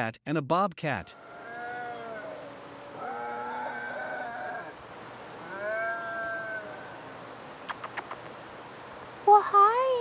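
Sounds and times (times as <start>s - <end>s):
cats yowling: 1.1s - 4.8s, 5.4s - 7.3s.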